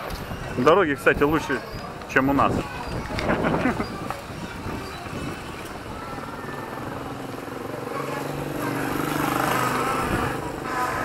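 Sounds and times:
motorcycle engine passing: 0:05.3 - 0:11.0.

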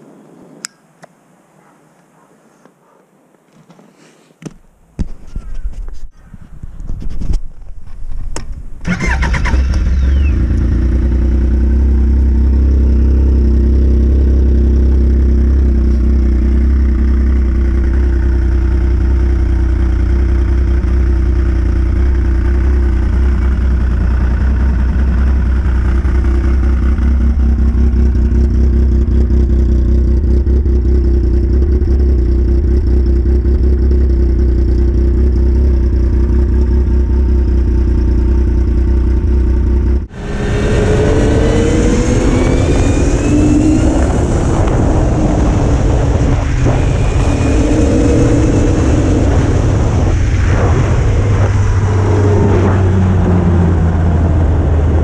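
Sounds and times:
snowmobile engine idling: 0:10.1 - 0:40.1.

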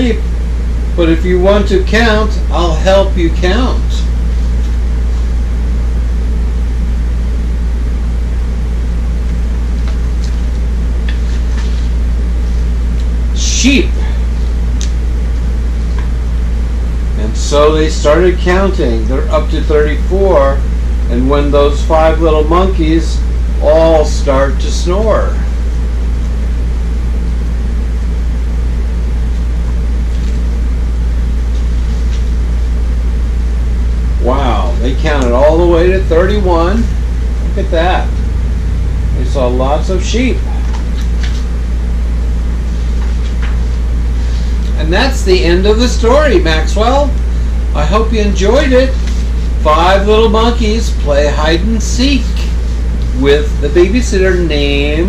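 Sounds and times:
low mechanical hum: 0:00.0 - 0:55.0
paper pages rustling: 0:04.3 - 0:05.3, 0:09.9 - 0:12.6, 0:30.1 - 0:30.5, 0:31.5 - 0:32.3, 0:40.7 - 0:41.5, 0:42.7 - 0:44.5
page turning rustle: 0:11.1 - 0:12.0, 0:30.1 - 0:30.5, 0:40.7 - 0:41.5, 0:42.7 - 0:43.8.

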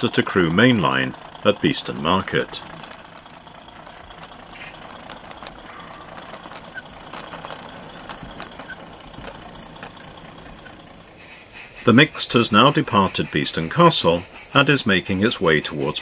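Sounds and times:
wheel clicks: 0:00.0 - 0:11.3
model wagons rolling on track: 0:00.0 - 0:16.0.

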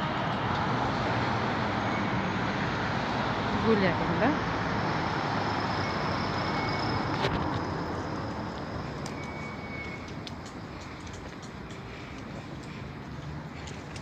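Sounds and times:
minibus passing: 0:00.0 - 0:14.0.

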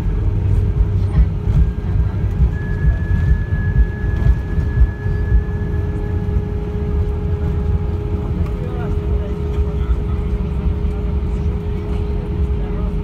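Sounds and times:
aircraft cabin low rumble: 0:00.0 - 0:13.0
faint steady hums: 0:00.0 - 0:13.0
thin high whine: 0:02.4 - 0:07.8.

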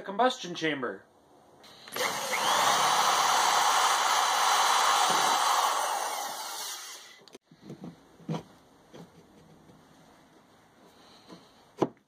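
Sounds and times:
electric drill boring plastic: 0:01.7 - 0:07.3.

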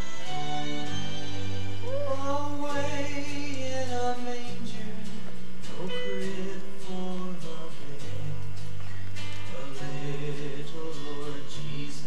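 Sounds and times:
singing voice: 0:01.8 - 0:08.6, 0:09.3 - 0:12.0.

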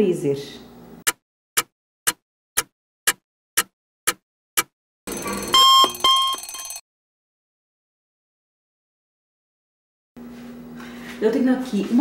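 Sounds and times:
clock ticking: 0:01.1 - 0:06.4
alarm ringing: 0:05.1 - 0:06.8.

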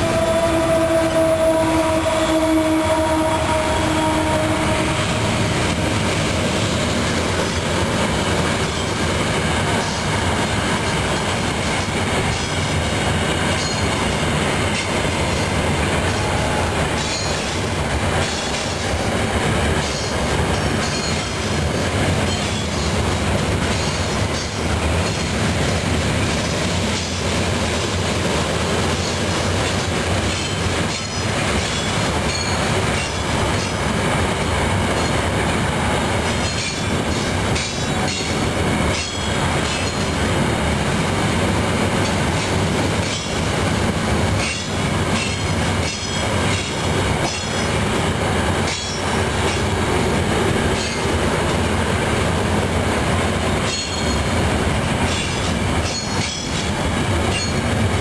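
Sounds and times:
freight train wheels rumbling: 0:00.0 - 0:58.0
wheels clicking over rail joints: 0:36.2 - 0:40.2, 0:55.0 - 0:57.9.

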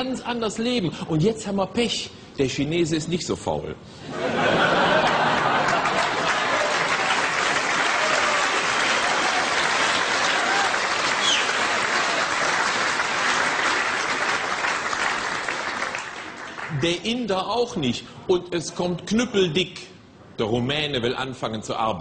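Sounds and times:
audience laughing: 0:04.0 - 0:07.7
audience applauding: 0:04.6 - 0:17.0.

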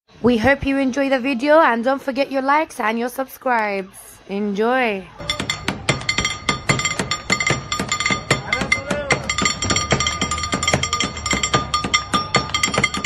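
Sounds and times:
crowd chatter: 0:00.9 - 0:13.0
utensils clinking on metal pans: 0:05.2 - 0:13.0.

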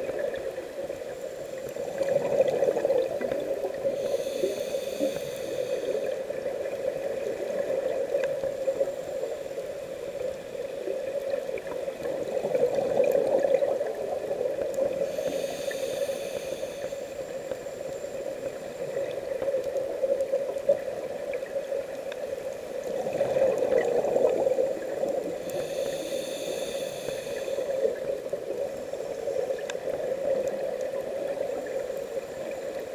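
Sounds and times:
hissing regulator inhale: 0:01.2 - 0:06.5, 0:14.8 - 0:19.4, 0:24.6 - 0:30.4.

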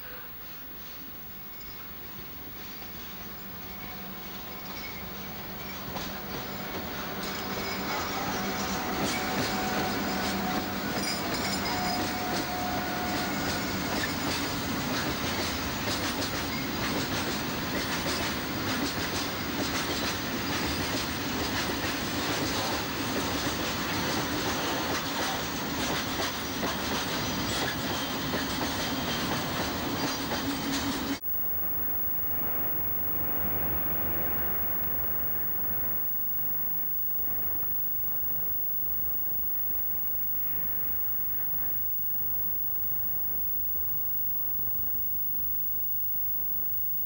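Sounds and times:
locomotive hum: 0:02.0 - 0:47.0
train wheels rumbling on rail: 0:02.6 - 0:31.2.

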